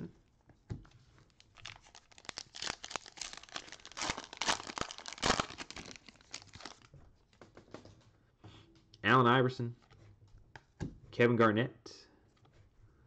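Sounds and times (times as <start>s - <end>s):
foil wrapper crinkling and tearing: 1.3s - 6.9s.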